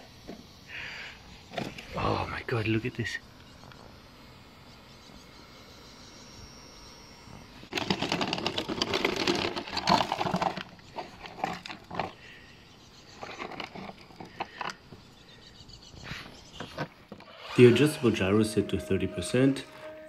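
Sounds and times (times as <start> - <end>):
crackling and rustling of plastic: 7.7 - 12.4, 13.0 - 15.1.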